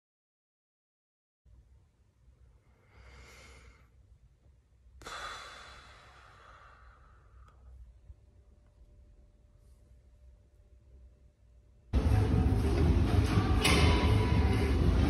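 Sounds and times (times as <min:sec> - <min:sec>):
man breathing in: 0:02.6 - 0:04.0, 0:05.0 - 0:07.8.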